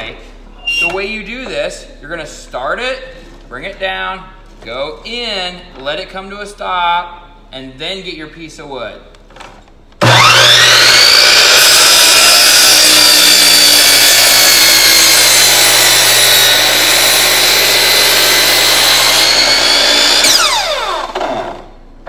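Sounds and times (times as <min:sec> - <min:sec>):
saw blade cutting wood: 0:10.0 - 0:21.6
miter saw motor whine: 0:10.0 - 0:21.7.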